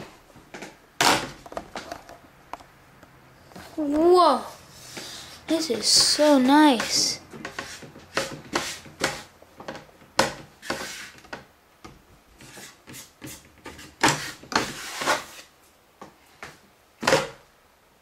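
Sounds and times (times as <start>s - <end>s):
wooden ramp scraping on table: 10.6s - 11.3s, 13.7s - 15.5s.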